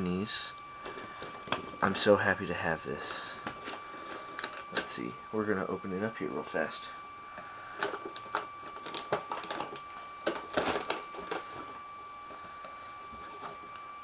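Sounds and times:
faint high whine: 0.0s - 14.0s
cardboard packaging rustling: 3.4s - 5.0s, 7.8s - 13.8s.

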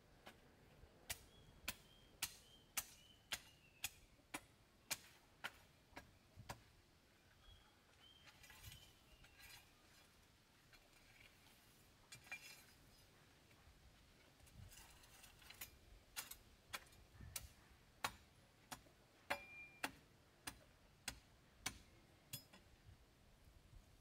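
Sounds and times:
faint high chirps: 19.3s - 19.8s.

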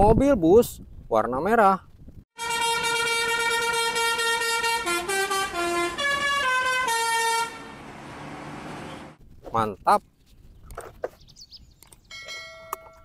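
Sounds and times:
bus musical air horn: 2.4s - 8.0s.

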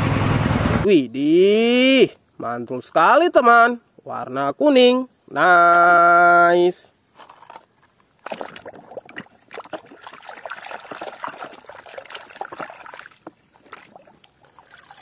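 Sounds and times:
water splashing in a basin: 8.2s - 15.0s.

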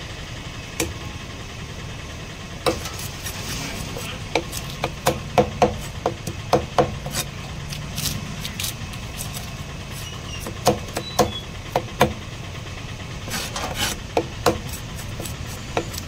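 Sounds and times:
knife chopping on wooden block: 4.0s - 7.3s, 10.4s - 12.2s, 13.3s - 16.0s.

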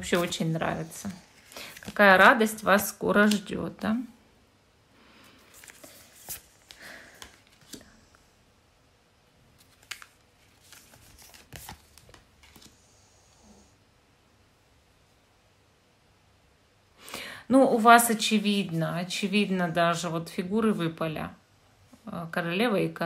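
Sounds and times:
cards rustling and sliding: 0.0s - 2.6s, 5.4s - 8.0s, 9.6s - 12.8s.

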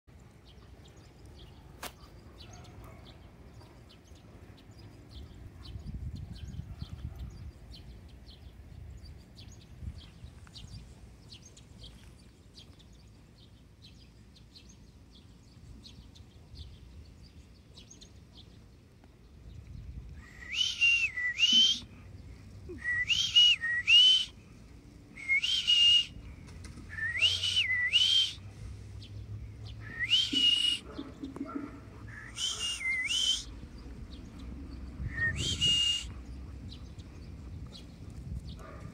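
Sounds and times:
rising two-part whistled call: 20.2s - 21.9s, 22.7s - 24.4s, 25.2s - 26.2s, 26.9s - 28.4s, 29.8s - 30.9s, 32.1s - 33.6s, 35.0s - 36.2s.

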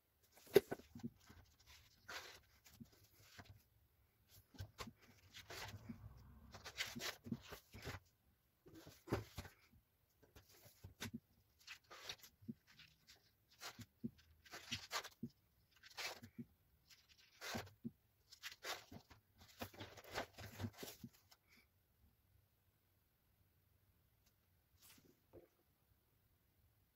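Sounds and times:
sketchbook pages turning: 0.2s - 3.6s, 4.3s - 8.1s, 10.3s - 21.4s.

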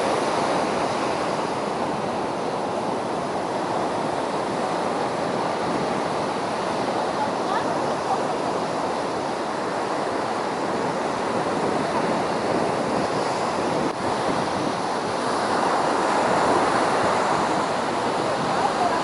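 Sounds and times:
ocean surf breaking on beach: 0.0s - 19.0s
wind buffeting microphone: 0.0s - 19.0s.

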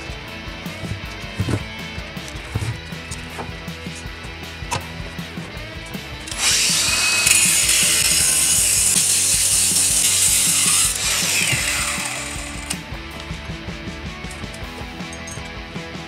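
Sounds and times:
angle grinder cutting metal pipe: 6.2s - 12.8s.

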